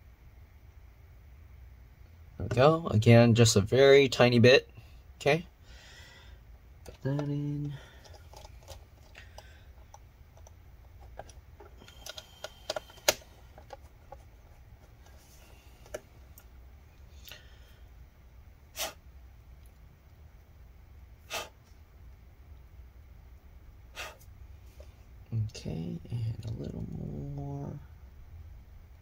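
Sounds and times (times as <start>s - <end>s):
short puffs of noise: 18.7s - 19.0s, 21.2s - 21.7s, 23.9s - 24.3s.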